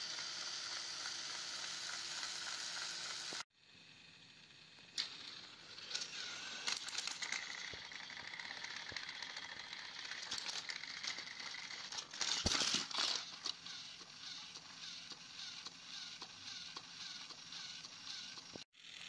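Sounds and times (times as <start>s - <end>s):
toy trains whirring on track: 0.0s - 19.0s
toy train falling clatter: 4.8s - 14.5s.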